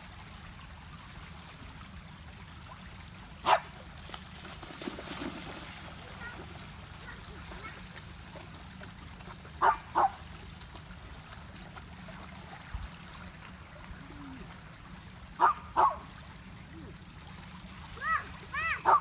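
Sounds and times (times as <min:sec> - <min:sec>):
waves lapping at shore: 0:00.0 - 0:19.0
dog barking sharply: 0:03.4 - 0:03.6.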